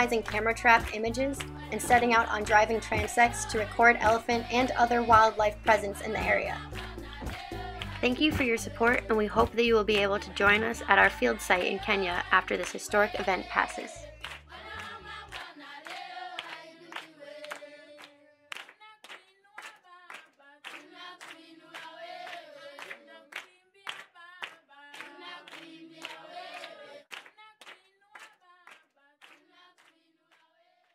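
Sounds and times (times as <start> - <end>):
clapping beat: 0.0 - 11.1, 14.1 - 30.0
voices singing: 0.0 - 18.2, 20.7 - 27.1.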